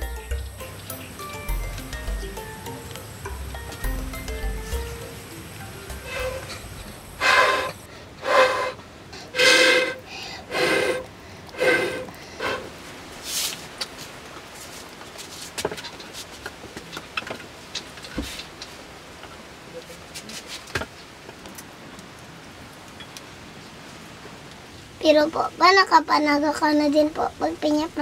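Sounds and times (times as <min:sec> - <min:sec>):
fire crackling: 0:00.0 - 0:25.0
breathy puffs through tube: 0:07.2 - 0:12.7.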